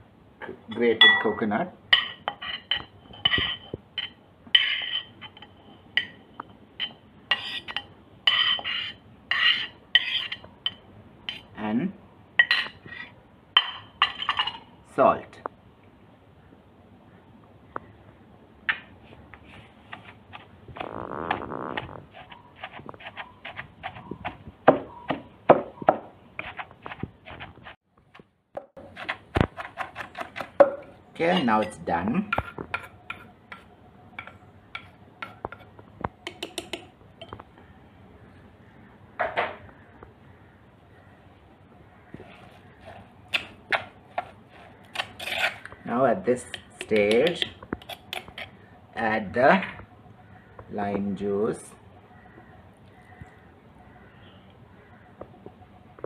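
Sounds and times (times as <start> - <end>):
metal spoon scraping a plate: 2.0 - 6.2, 6.8 - 11.5, 42.2 - 45.8, 46.5 - 48.5
pestle pounding in stone mortar: 19.9 - 27.8, 28.6 - 30.9.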